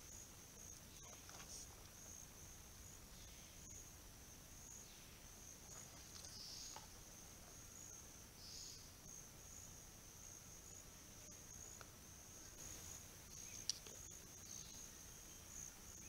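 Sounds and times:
high-pitched insect drone: 4.6s - 16.0s
faint ticks: 11.7s - 12.0s, 13.3s - 14.2s.

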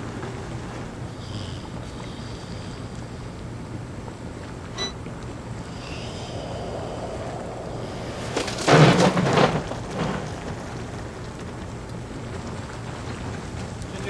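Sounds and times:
steady low hum: 0.0s - 14.0s
rushing rumbling burst: 5.0s - 14.0s.

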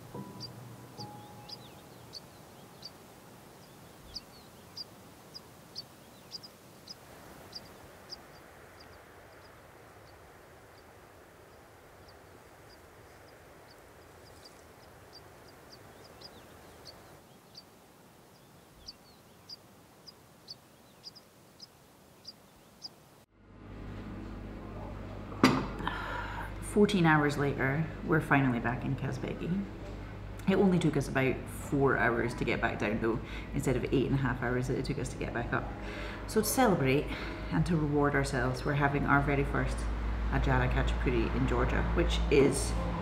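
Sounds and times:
small bird chirping: 0.0s - 23.0s
faint outdoor hush: 0.0s - 26.8s, 34.9s - 39.2s.

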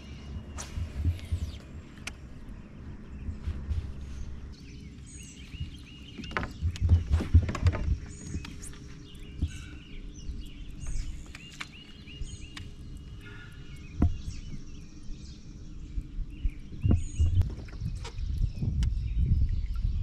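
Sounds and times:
low rumble: 0.0s - 20.0s
songbirds chirping and whistling: 0.0s - 20.0s
sharp knocks and clicks: 5.6s - 9.6s, 14.0s - 14.6s.

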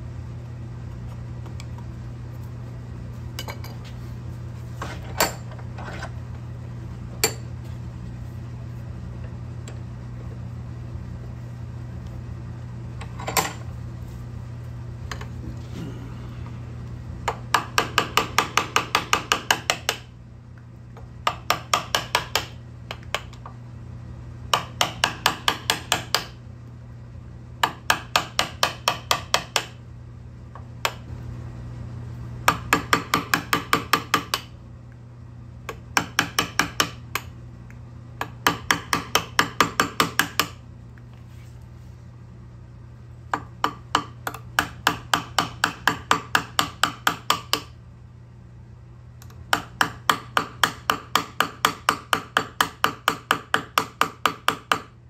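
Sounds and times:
chisel tapping into wood: 21.2s - 23.4s, 27.6s - 29.8s, 35.7s - 37.3s, 38.2s - 40.6s, 43.3s - 47.7s, 49.5s - 54.9s.

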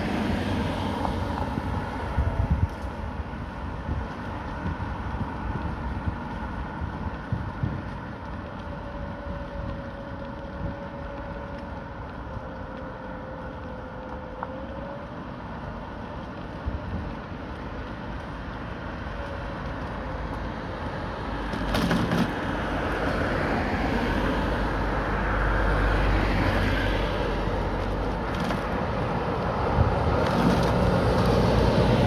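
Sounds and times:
bus passing: 0.0s - 32.0s
tyres hissing on wet asphalt: 0.0s - 32.0s.

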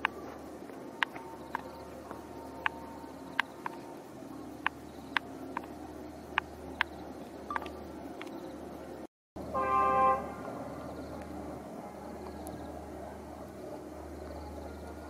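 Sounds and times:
low steady background noise: 0.0s - 15.0s
train horn blast: 9.4s - 10.7s.

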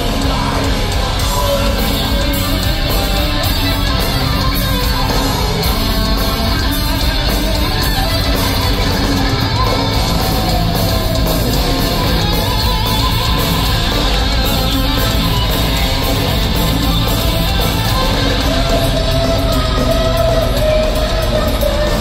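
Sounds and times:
electric guitar: 0.0s - 22.0s
heavy metal band playing live: 0.0s - 22.0s.

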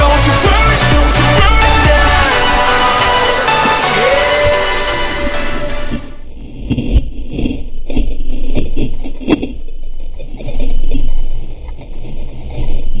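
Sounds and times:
sea water rushing and splashing: 0.0s - 6.2s.

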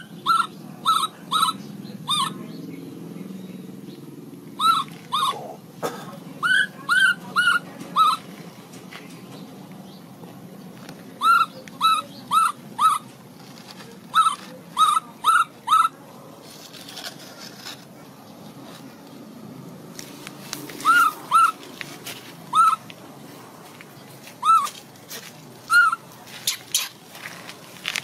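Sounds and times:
infant monkey high-pitched cries: 0.0s - 2.4s, 4.6s - 5.6s, 6.4s - 8.3s, 11.2s - 13.1s, 14.1s - 16.0s, 20.8s - 21.6s, 22.5s - 22.8s, 24.4s - 24.8s, 25.7s - 27.0s.

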